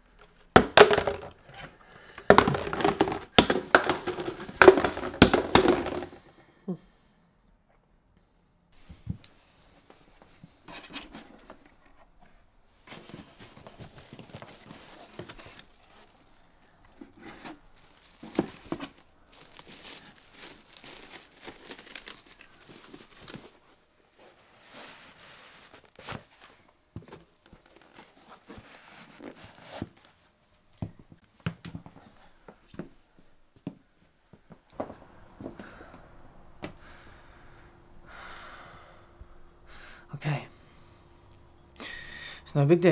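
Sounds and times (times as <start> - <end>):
plastic wrapping crinkling: 2.3 - 6.2, 13.4 - 23.7.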